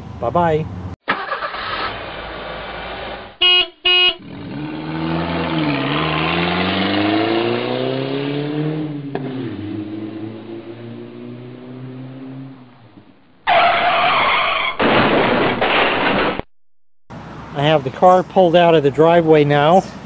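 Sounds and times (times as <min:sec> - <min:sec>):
car horn beeps: 0:03.4 - 0:04.3
car engine accelerating: 0:04.2 - 0:13.4.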